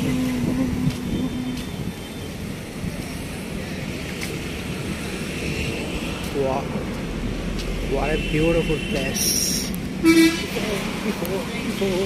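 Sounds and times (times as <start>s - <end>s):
held low tone: 0.0s - 2.0s.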